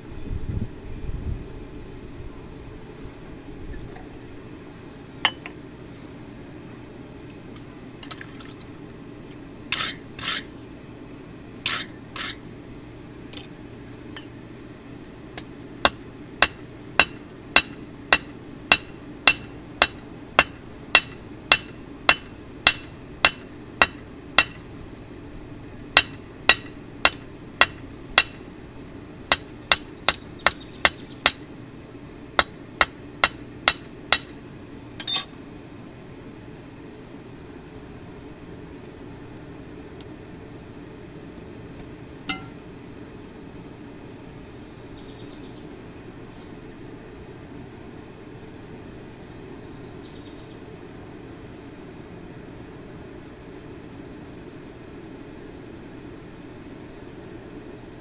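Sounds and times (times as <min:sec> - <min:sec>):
steady low hum: 0:00.0 - 0:58.0
hammer ringing on chisel: 0:42.3 - 0:42.6.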